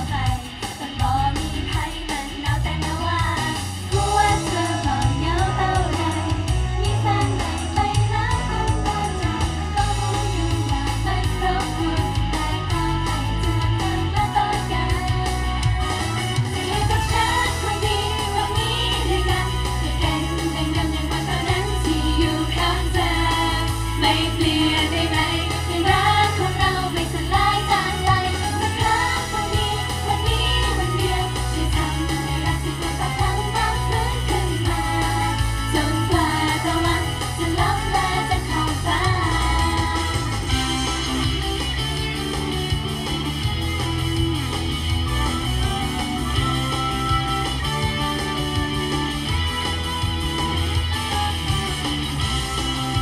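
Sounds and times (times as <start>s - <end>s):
women singing pop song: 0.0s - 40.8s
drums and guitar: 0.0s - 53.0s
steady bass: 0.0s - 53.0s.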